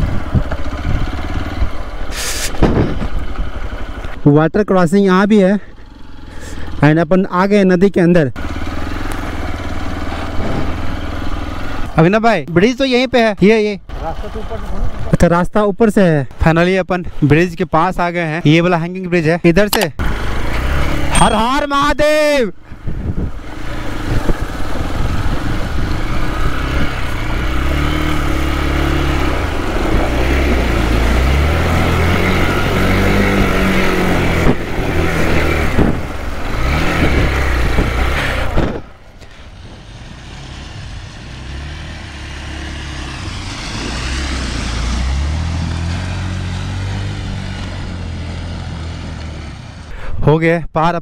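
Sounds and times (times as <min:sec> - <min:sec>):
motorcycle engine revving: 0:00.0 - 0:04.2, 0:08.3 - 0:12.0, 0:20.0 - 0:22.2, 0:22.9 - 0:49.9.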